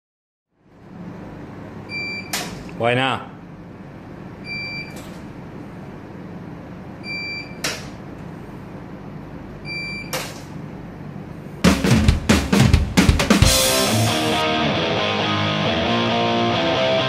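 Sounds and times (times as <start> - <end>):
loud music with drum kit: 11.6 - 17.0.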